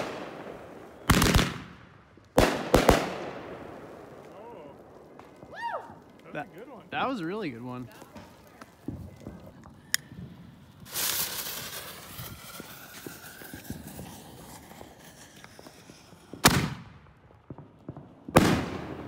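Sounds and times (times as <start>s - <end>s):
firework report: 0.0s - 19.0s
hiss: 10.8s - 15.6s.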